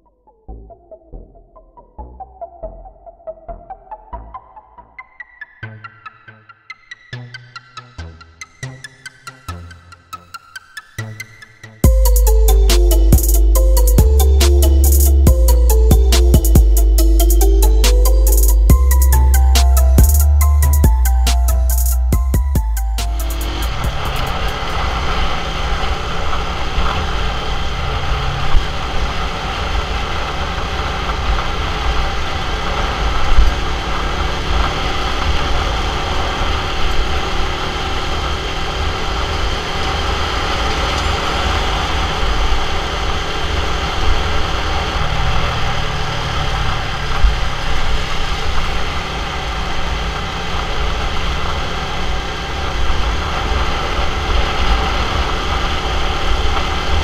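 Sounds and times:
motorcycle engine running: 11.8s - 57.0s.

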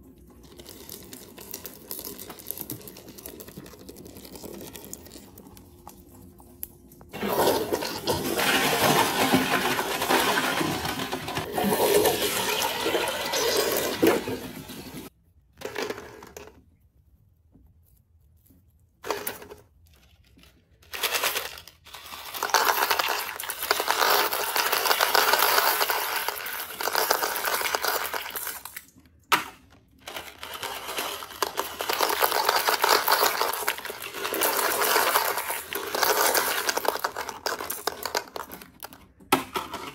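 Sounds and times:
toilet flushing: 7.1s - 15.1s
small hard items dropping into bowl: 20.9s - 39.9s.

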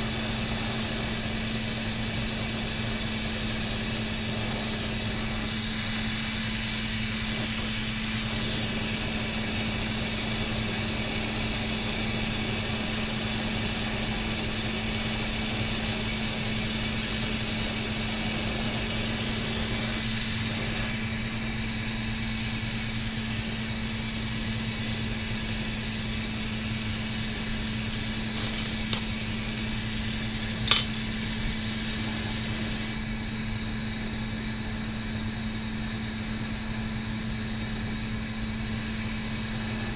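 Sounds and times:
torch hissing: 0.0s - 21.1s
glass clinks: 28.2s - 29.2s, 30.7s - 31.0s.

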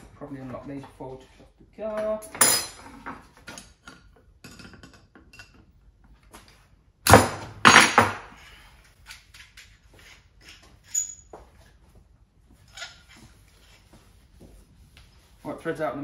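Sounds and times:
tools clinking on a workbench: 2.0s - 5.7s.

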